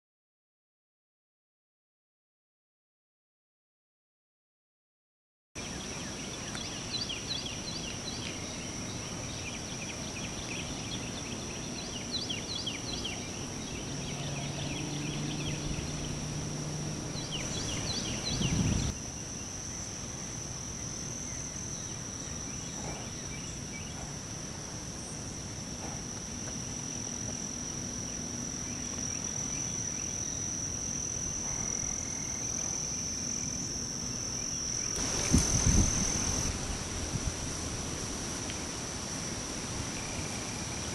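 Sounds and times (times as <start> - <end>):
high-pitched insect buzz: 5.6 - 40.9
rapid bird chirps: 17.1 - 19.0.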